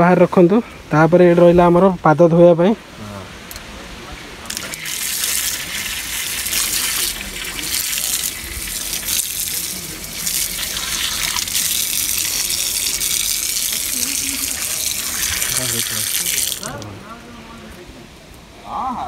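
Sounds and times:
tap water splashing on tiles: 4.5s - 16.9s.

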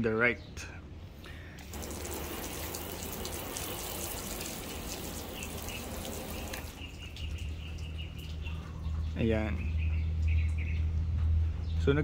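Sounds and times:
water spraying on car paint: 1.6s - 7.2s.

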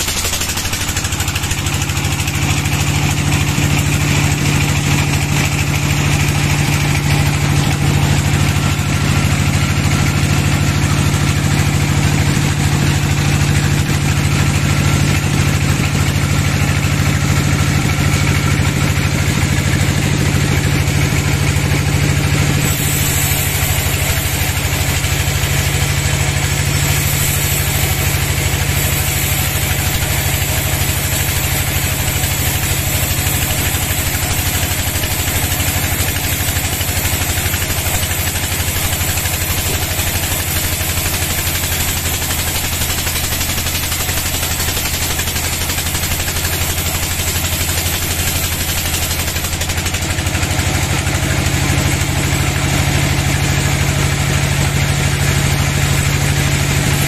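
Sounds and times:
band saw humming: 0.0s - 53.5s
high hiss: 22.6s - 36.1s.

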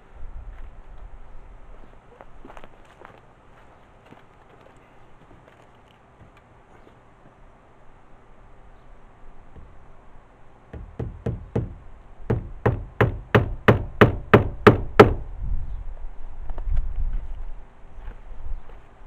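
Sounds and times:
hammer driving nails into roof: 10.7s - 15.2s.

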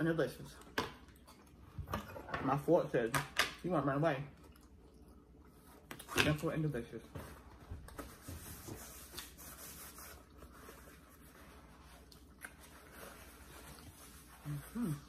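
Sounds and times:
person humming: 14.5s - 15.0s.

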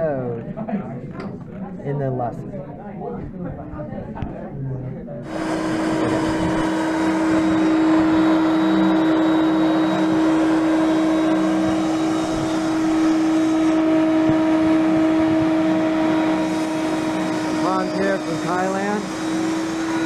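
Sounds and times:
router spindle whining: 5.3s - 20.0s.

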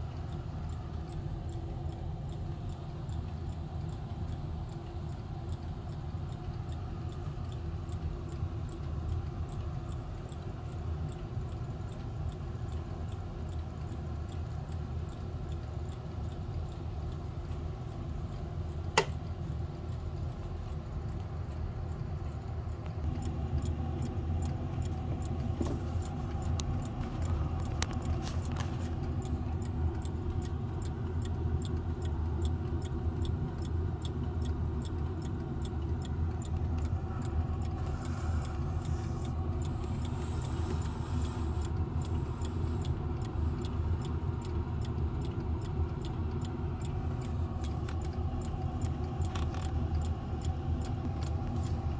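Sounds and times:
clock ticking: 0.0s - 51.9s
steady low hum: 0.0s - 51.9s
sharp click: 19.0s - 19.2s.

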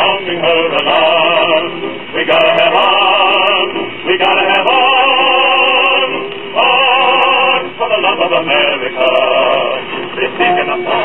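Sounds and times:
old record of voices singing: 0.0s - 11.0s.

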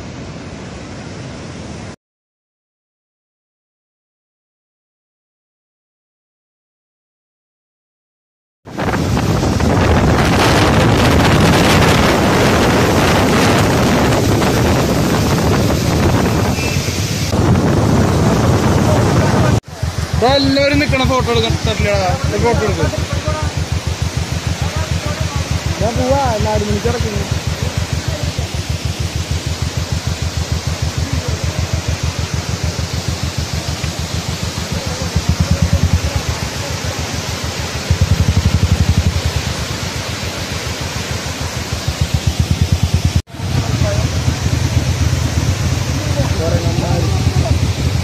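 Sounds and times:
waterfall roar: 0.0s - 2.0s, 8.7s - 48.0s
wind buffeting microphone: 8.7s - 40.2s
fast low flutter: 8.7s - 48.0s.

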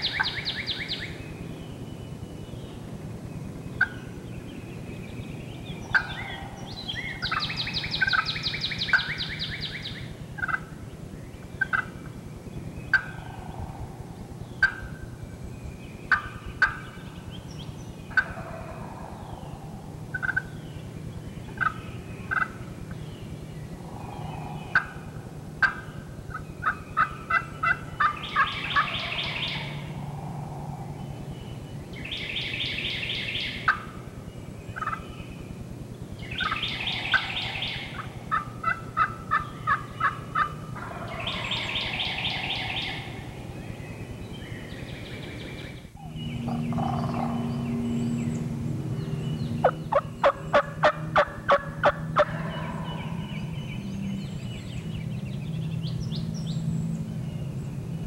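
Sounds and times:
turkeys gobbling: 3.8s - 4.0s, 5.8s - 10.8s, 11.6s - 12.1s, 12.9s - 15.1s, 16.1s - 17.0s, 18.1s - 20.8s, 21.5s - 23.0s, 24.0s - 30.0s, 32.6s - 34.0s, 34.8s - 35.0s, 36.4s - 43.4s, 46.5s - 47.4s, 49.6s - 53.5s
turkey clucks: 5.9s - 9.3s, 10.4s - 10.7s, 11.6s - 12.1s, 12.9s - 13.2s, 14.6s - 15.0s, 16.1s - 16.9s, 18.1s - 18.8s, 20.1s - 20.5s, 21.5s - 22.6s, 24.7s - 29.8s, 34.8s - 35.0s, 36.4s - 43.3s, 46.5s - 47.4s, 49.6s - 53.0s.

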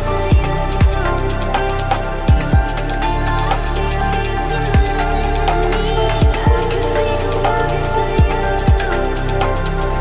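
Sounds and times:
deep bass kicks dropping in pitch: 0.0s - 3.8s, 4.4s - 7.4s
background music with steady tones: 0.0s - 10.0s.

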